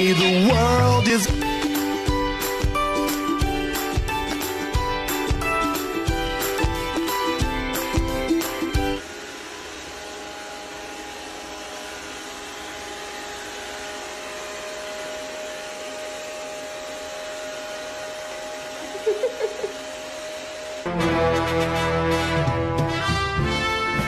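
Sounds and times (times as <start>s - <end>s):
robot vacuum cleaner whirring: 1.4s - 20.9s.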